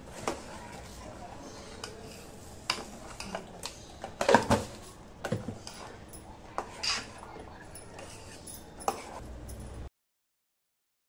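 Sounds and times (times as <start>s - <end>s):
spoon scraping a metal pot: 6.6s - 9.2s.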